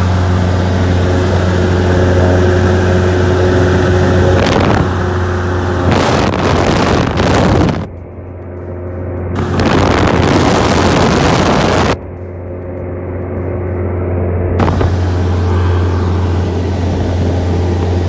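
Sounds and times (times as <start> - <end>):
aircraft engine drone: 0.0 - 18.0
rushing air noise: 3.6 - 7.9, 9.4 - 12.0, 14.6 - 18.0.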